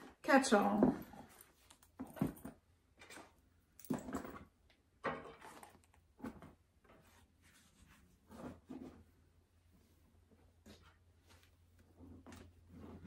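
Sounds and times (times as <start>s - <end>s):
soft rustles: 5.4s - 13.0s.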